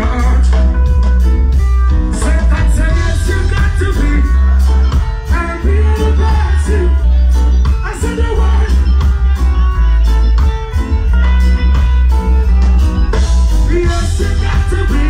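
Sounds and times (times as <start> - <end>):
man singing: 0.0 - 0.9, 2.1 - 9.3, 13.6 - 15.0
live reggae band: 0.0 - 15.0.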